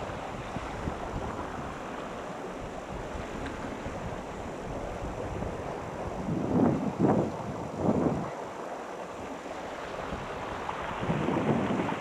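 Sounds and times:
river rushing over boulders: 0.0s - 12.0s
wind rumbling on microphone: 0.0s - 12.0s.

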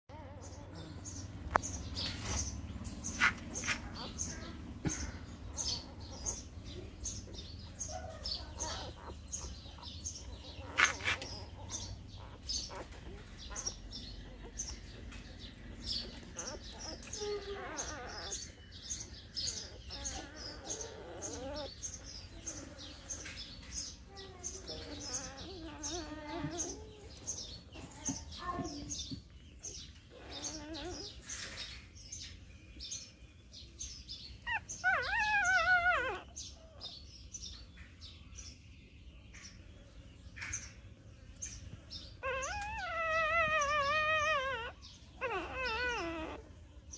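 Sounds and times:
small birds chirping: 0.0s - 46.9s
puppy whining: 0.1s - 28.6s, 29.6s - 31.8s, 33.8s - 37.6s, 41.5s - 46.9s
puppies squeaking and whimpering: 0.1s - 28.7s, 29.6s - 33.1s, 33.8s - 37.8s, 41.4s - 46.9s.

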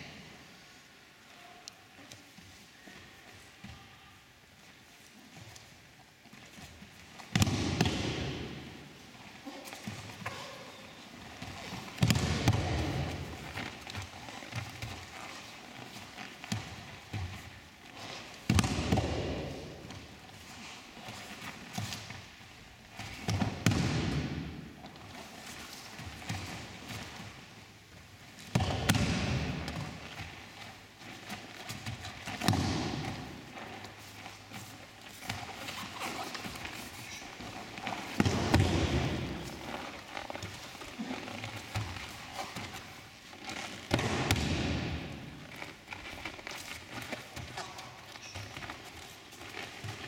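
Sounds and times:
rolling and rustling: 4.6s - 50.0s
scuffing and rustling of cloth: 29.2s - 50.0s.

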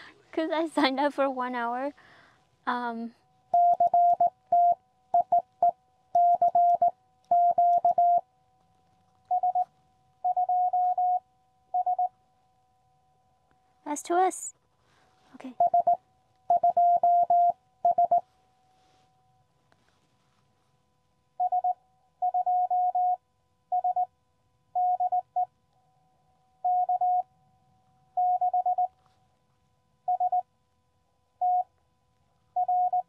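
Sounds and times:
morse code tones: 3.5s - 8.2s, 9.3s - 11.2s, 11.8s - 12.1s, 15.4s - 18.3s, 21.4s - 24.1s, 26.6s - 27.3s, 28.2s - 28.9s, 30.1s - 30.4s, 32.6s - 33.0s.

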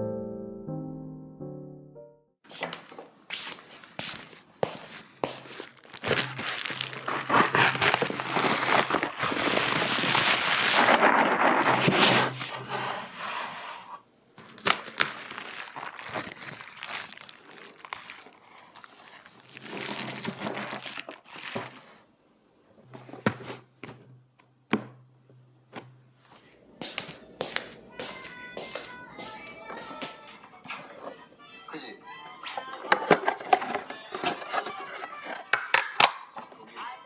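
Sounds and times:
bubble wrap crinkling: 3.5s - 12.7s, 14.4s - 22.0s, 33.0s - 35.5s.

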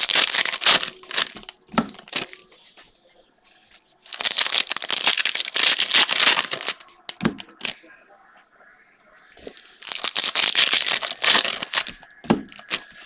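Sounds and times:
foil wrapper tearing and crinkling: 0.0s - 2.4s, 4.1s - 7.8s, 9.6s - 13.0s.

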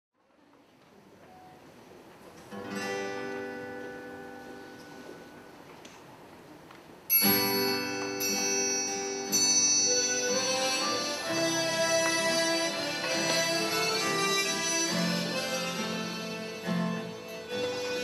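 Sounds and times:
harmonica ensemble playing chords: 8.9s - 18.0s.

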